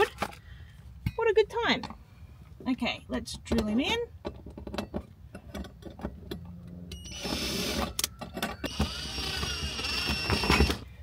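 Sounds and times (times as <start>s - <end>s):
cordless drill driving screw: 7.0s - 10.8s.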